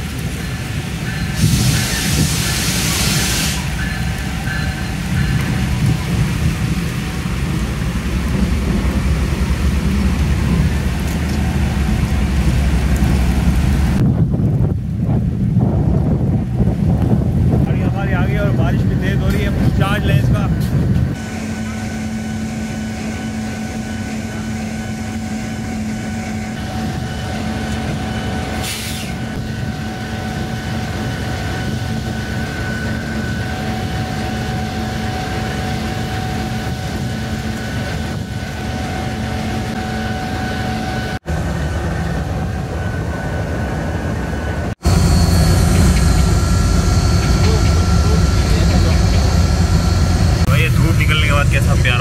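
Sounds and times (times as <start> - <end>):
diesel locomotive rolling on rails: 0.0 - 52.0.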